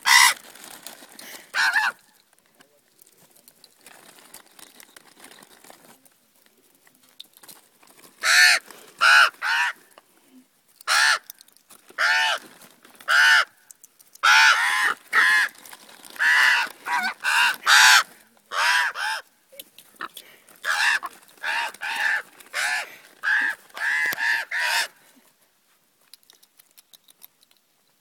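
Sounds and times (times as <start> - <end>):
ravens cawing: 0.0 - 0.4, 1.5 - 2.0, 8.2 - 9.9, 10.9 - 11.4, 12.0 - 13.6, 14.2 - 19.3, 20.0 - 25.0.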